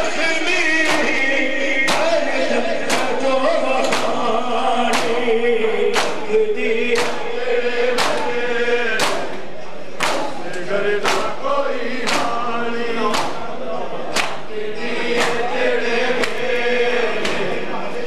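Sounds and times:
men chanting in unison: 0.0 - 18.0
hands slapping bare chests: 6.0 - 6.2, 7.0 - 7.2, 8.0 - 8.3, 9.0 - 9.3, 10.0 - 11.3, 12.0 - 12.4, 13.1 - 13.4, 14.2 - 14.4, 15.2 - 15.4.

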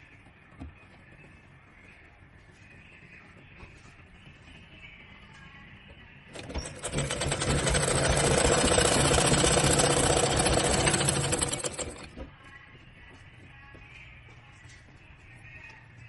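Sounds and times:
sewing machine stitching: 6.3 - 12.2.

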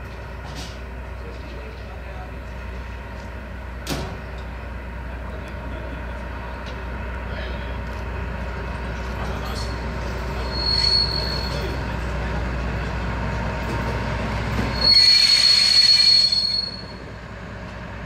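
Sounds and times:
diesel locomotive droning: 0.0 - 18.0
high wheel squeal: 9.5 - 11.9, 14.6 - 17.1.

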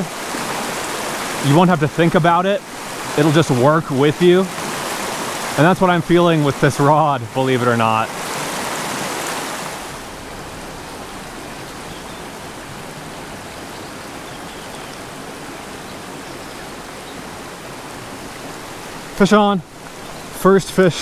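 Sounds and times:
stream rushing over rocks: 0.0 - 21.0.

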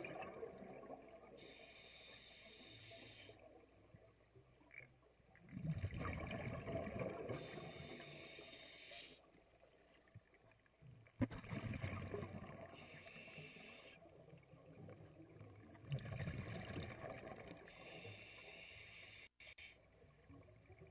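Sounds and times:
exhaled bubbles underwater: 0.0 - 1.4, 5.2 - 8.3, 11.1 - 13.0, 14.1 - 17.9
regulator breath hiss: 1.4 - 3.4, 7.4 - 9.3, 12.8 - 14.0, 17.7 - 19.8.

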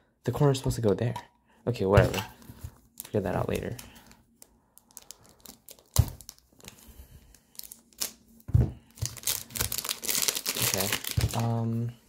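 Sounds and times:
plastic film crinkling: 2.4 - 8.2, 8.9 - 11.6.

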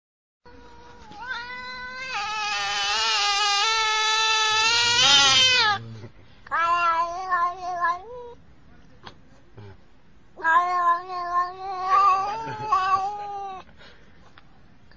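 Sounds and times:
angry cat yowling: 0.5 - 5.9, 6.5 - 8.4, 10.4 - 13.6.

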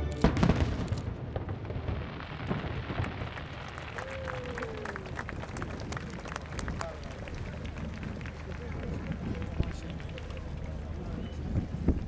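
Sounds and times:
fireworks crackling: 0.0 - 12.0
fireworks booming: 0.2 - 7.1.

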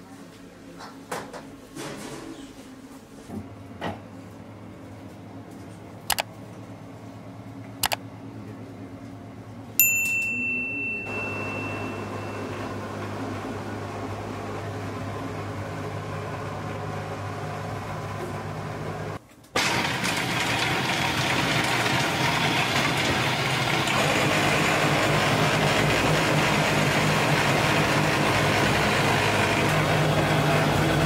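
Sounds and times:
fan-like hum: 0.0 - 31.0
sharp metallic ting: 9.8 - 12.5.

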